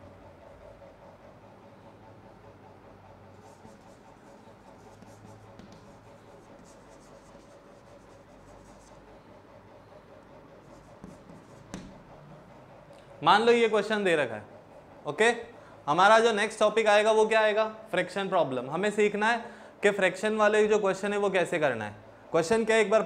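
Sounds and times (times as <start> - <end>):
low room hum: 0.0 - 23.0
chalk scratching on chalkboard: 3.3 - 9.1, 10.6 - 12.1.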